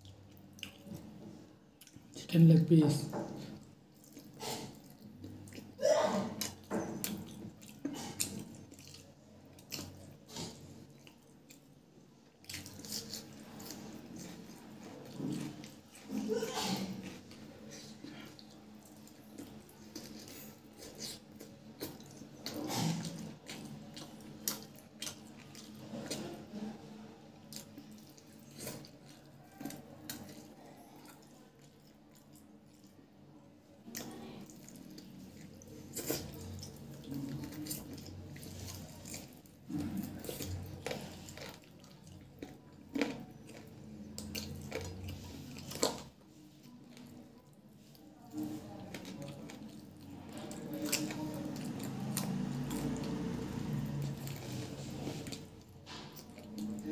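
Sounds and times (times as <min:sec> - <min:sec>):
wet chewing and lip smacks: 0:00.0 - 0:01.2, 0:03.9 - 0:05.8, 0:06.4 - 0:11.7, 0:18.0 - 0:26.3.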